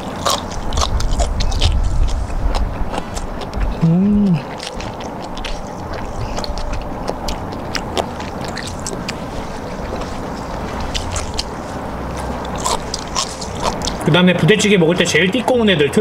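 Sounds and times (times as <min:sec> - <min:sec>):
chewing: 0:00.0 - 0:14.1
steady low rumble: 0:00.0 - 0:16.0.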